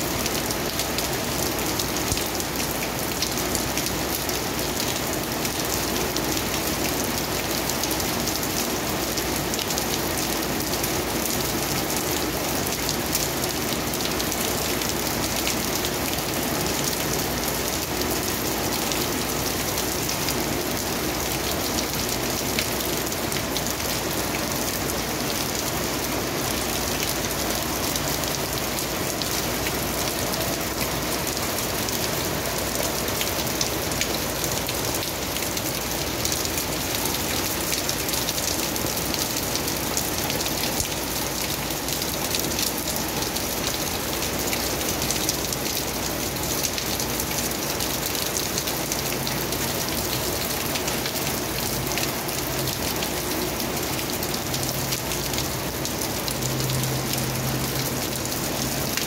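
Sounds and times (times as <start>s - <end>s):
heavy rain on pavement: 0.0s - 59.0s.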